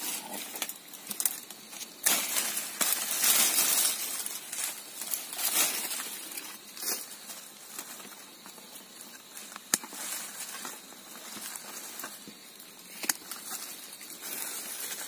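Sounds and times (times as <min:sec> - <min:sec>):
brushing through undergrowth: 0:00.0 - 0:08.5, 0:09.2 - 0:15.0
footsteps crunching dry leaves: 0:01.1 - 0:08.5, 0:09.2 - 0:12.5.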